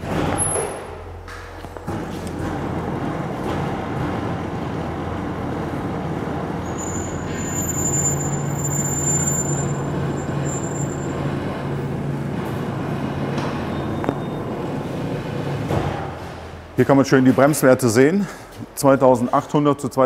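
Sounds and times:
rollers and tyres rumbling: 0.0s - 16.9s
high whine: 1.6s - 15.7s.

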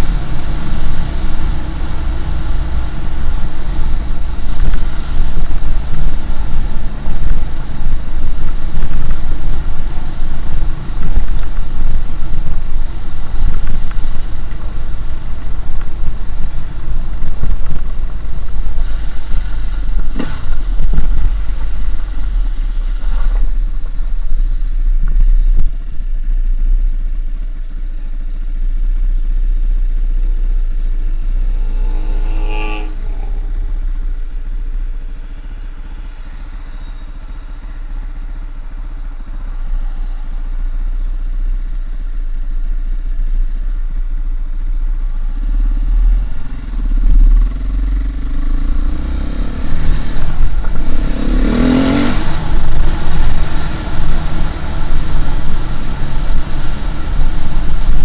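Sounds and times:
wind and ride noise: 0.0s - 58.0s
motorcycle engine revving: 30.8s - 41.4s, 45.3s - 58.0s.

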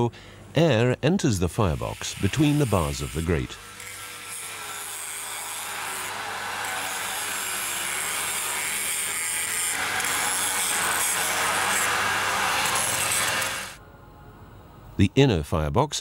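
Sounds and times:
angle grinder cutting steel: 1.7s - 13.8s.

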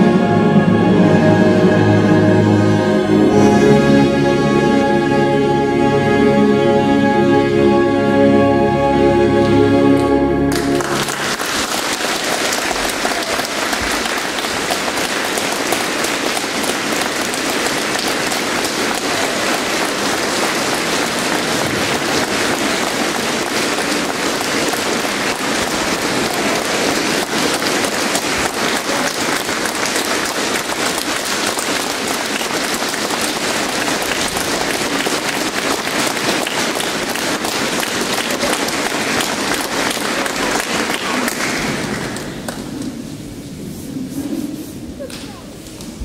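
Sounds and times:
audience applauding: 10.5s - 43.1s.

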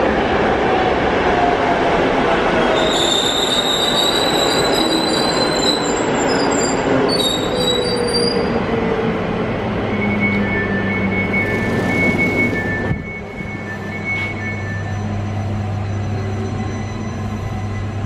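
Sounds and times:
electric train whine: 0.0s - 18.0s
train running noise: 0.0s - 18.0s
brakes squealing: 9.8s - 18.0s.

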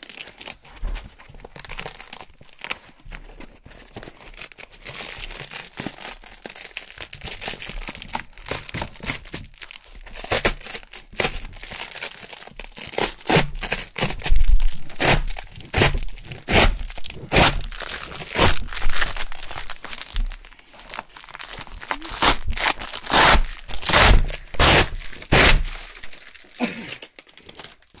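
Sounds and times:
velcro ripping: 12.8s - 27.7s.

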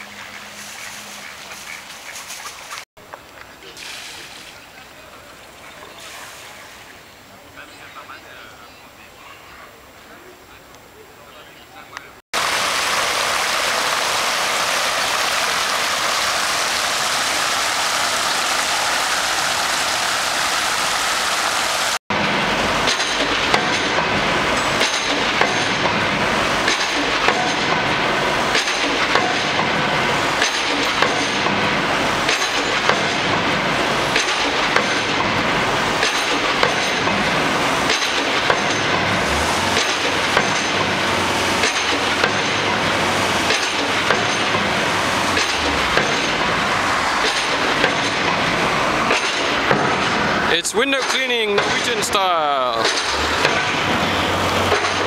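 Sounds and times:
street traffic noise: 0.0s - 55.0s
water rushing over weir: 12.4s - 55.0s.

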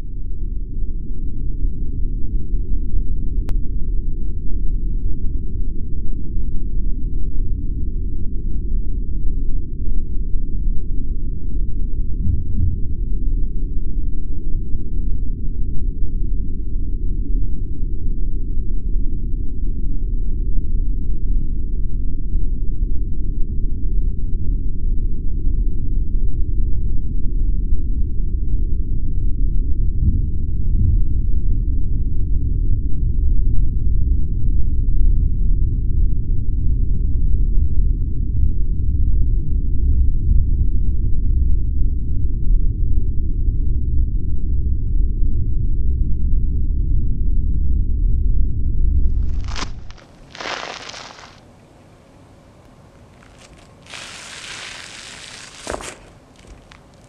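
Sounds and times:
low muffled rumble: 0.0s - 54.2s
deep noisy rumble: 40.0s - 51.4s.

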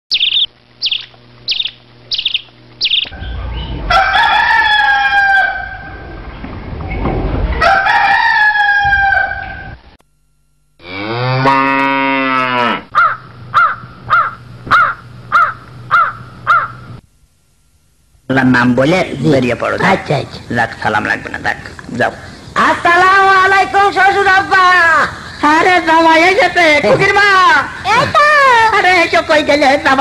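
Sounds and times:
small bird chirping: 0.1s - 3.8s
rooster crowing: 3.2s - 6.2s, 7.5s - 9.8s, 10.9s - 16.8s
cow mooing: 10.8s - 13.1s
crow cawing: 12.9s - 16.9s.

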